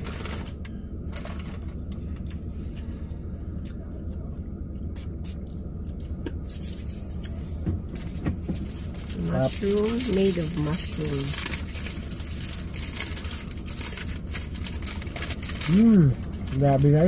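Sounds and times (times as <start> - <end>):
paper wrappers crinkling: 0.0 - 1.8, 8.0 - 17.0
car engine idling: 0.0 - 17.0.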